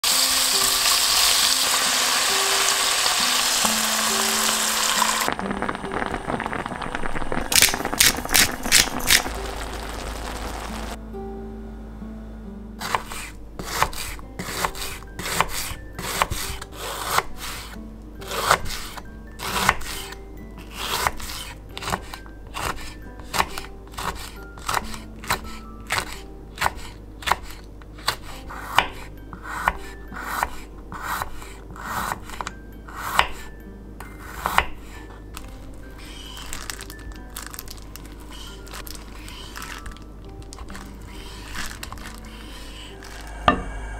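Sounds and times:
soft background music: 0.0s - 43.9s
knife chopping on wooden board: 12.8s - 17.7s, 20.7s - 32.5s.

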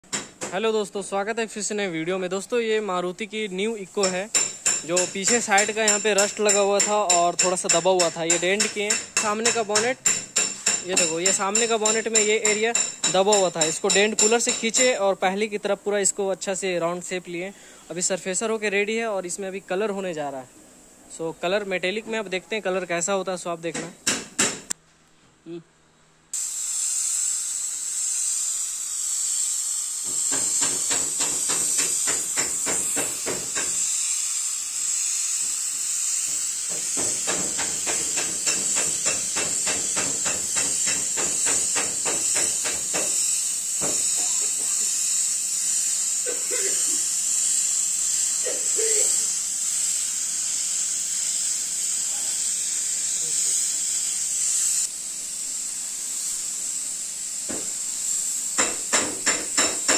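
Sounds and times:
spray gun hissing: 2.9s - 21.1s, 26.3s - 59.9s
fast regular ticking: 4.0s - 15.0s.

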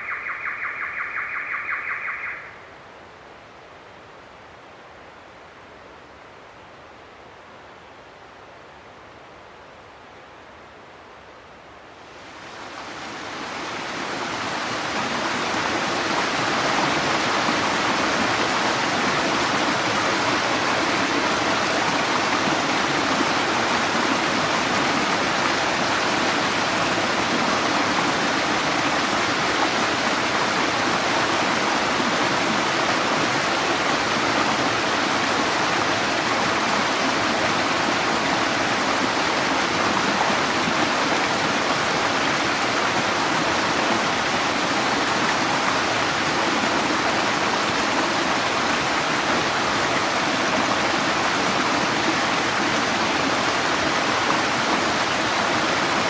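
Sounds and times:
water splashing over rocks: 13.2s - 56.0s.

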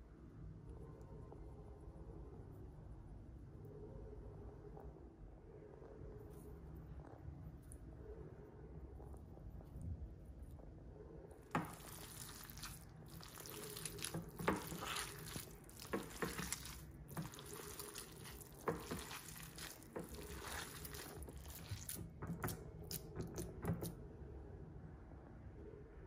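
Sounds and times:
wet mince squishing: 11.5s - 24.0s.

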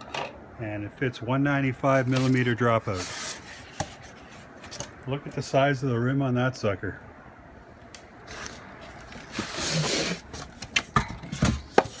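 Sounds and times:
foam and cardboard scraping: 2.0s - 4.5s, 8.3s - 10.6s.

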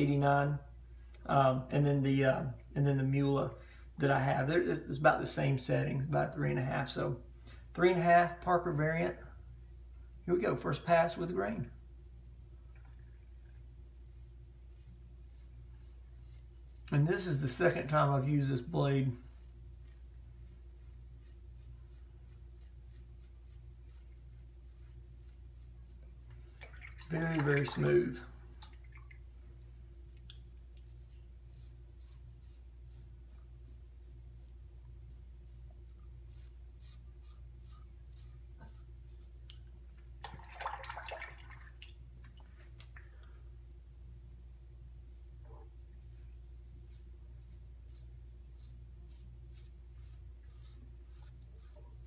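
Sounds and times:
razor scraping stubble: 12.1s - 26.2s, 30.7s - 39.8s, 44.4s - 52.0s.

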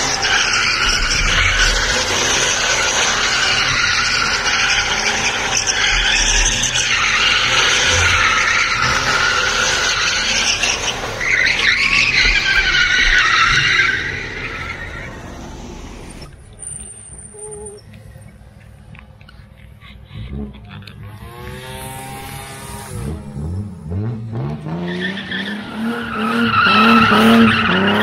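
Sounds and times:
tyres squealing in a drift: 0.0s - 17.8s, 24.6s - 28.0s.

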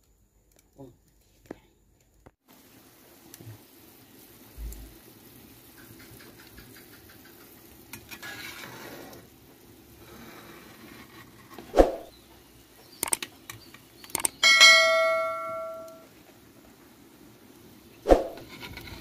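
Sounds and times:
sap boiling in a pot: 0.0s - 15.3s, 16.0s - 19.0s
fire crackles: 0.0s - 19.0s
sharp clicks: 13.0s - 14.6s.

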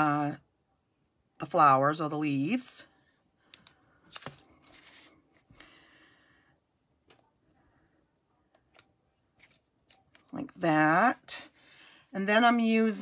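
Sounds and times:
paper rustling: 4.1s - 5.5s.

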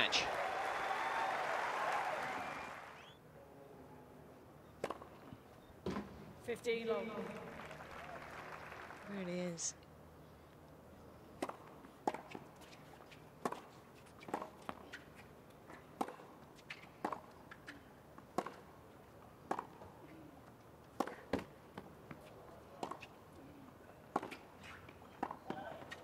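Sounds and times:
tennis ball bouncing: 11.4s - 12.8s, 13.4s - 15.0s, 15.7s - 18.8s, 19.4s - 20.0s, 20.9s - 23.1s, 24.1s - 26.0s
racket striking tennis ball: 16.0s - 18.7s, 21.0s - 21.9s, 24.1s - 26.0s.

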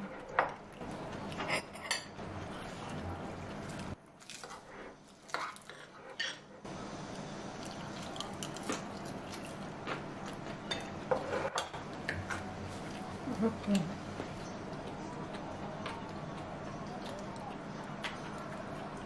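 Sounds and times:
chewing: 7.6s - 10.6s, 12.1s - 19.0s.

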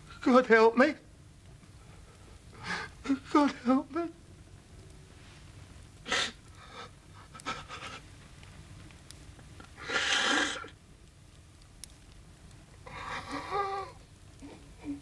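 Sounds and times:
man sobbing and gasping: 2.6s - 3.9s, 6.6s - 8.0s.

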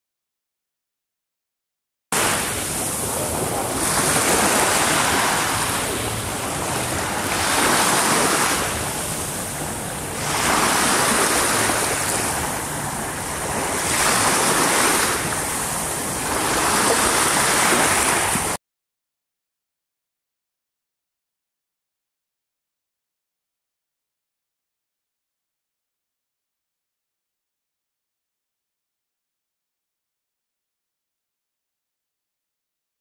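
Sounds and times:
waves washing onto a beach: 2.2s - 18.6s.

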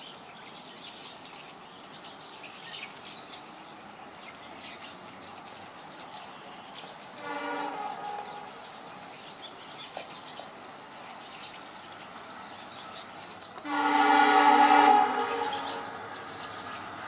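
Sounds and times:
locomotive air horn blast: 7.2s - 8.4s, 13.6s - 16.1s.

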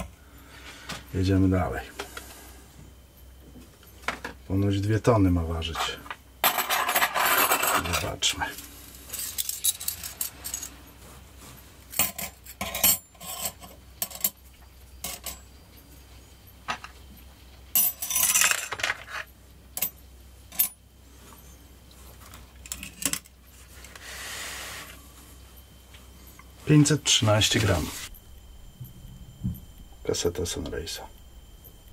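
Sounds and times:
metal sprockets clinking: 9.0s - 10.9s.

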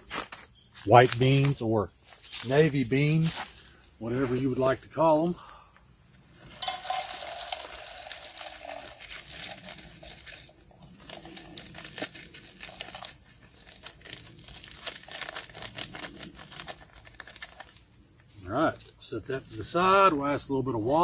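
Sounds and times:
insect chorus: 0.0s - 21.0s
beans rattling into cup: 6.6s - 17.8s
plastic bag crinkling: 6.6s - 17.8s.

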